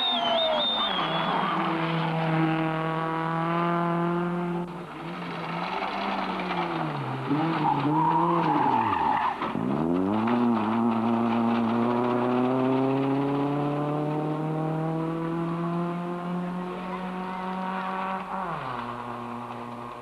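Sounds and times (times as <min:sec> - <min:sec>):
tyre squeal: 0:00.0 - 0:01.7, 0:07.4 - 0:09.4
rally car engine revving: 0:00.0 - 0:20.0.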